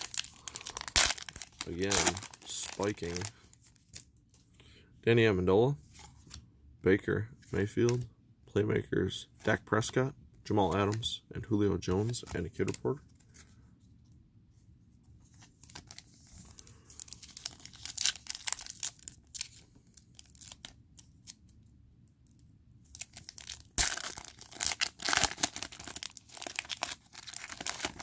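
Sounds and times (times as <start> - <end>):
foil wrapper crinkling and tearing: 0.0 - 4.1, 15.4 - 21.4, 22.8 - 28.0.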